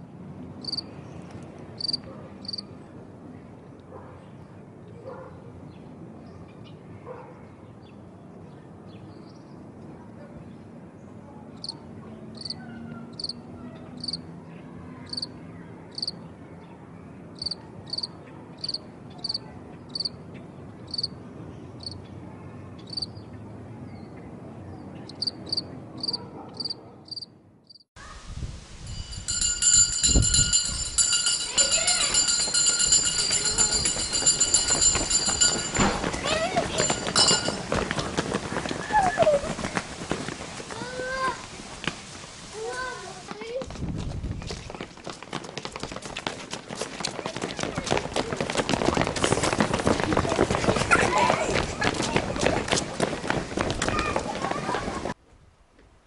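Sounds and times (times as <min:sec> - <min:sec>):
cricket chirping: 0:00.6 - 0:00.9, 0:01.8 - 0:02.6, 0:12.4 - 0:12.6, 0:14.0 - 0:14.2, 0:17.4 - 0:19.4, 0:20.9 - 0:21.1, 0:25.1 - 0:27.8
loud steady high ringing: 0:28.8 - 0:37.7.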